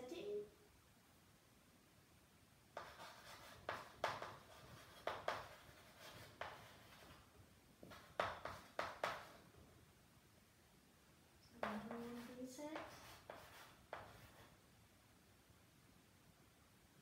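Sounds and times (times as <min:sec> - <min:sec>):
chalk writing on chalkboard: 0:02.8 - 0:09.4, 0:11.6 - 0:14.6.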